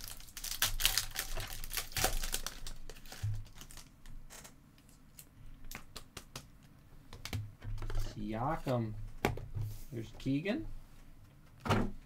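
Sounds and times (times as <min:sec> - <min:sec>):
foil wrapper crinkling and tearing: 0:00.0 - 0:04.0.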